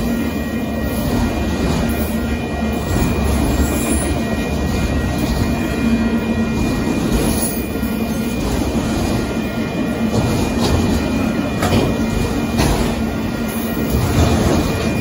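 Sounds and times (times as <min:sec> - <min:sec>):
freight train wheels rumbling: 0:00.0 - 0:15.0.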